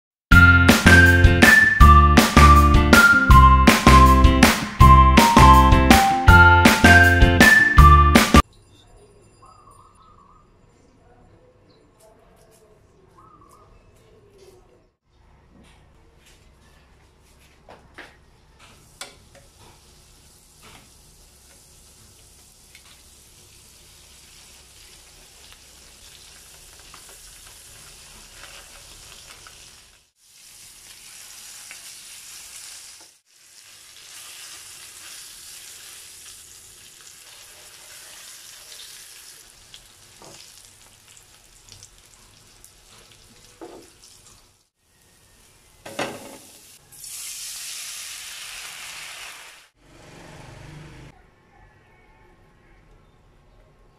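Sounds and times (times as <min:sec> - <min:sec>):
fish sizzling in a pan: 0:19.4 - 0:44.7, 0:46.2 - 0:49.7.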